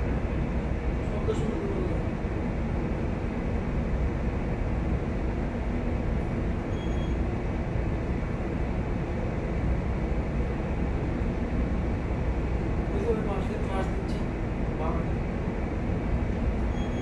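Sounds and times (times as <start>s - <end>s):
low rumble of ship engine: 0.0s - 17.0s
faint high beep: 6.7s - 7.2s, 16.7s - 17.0s.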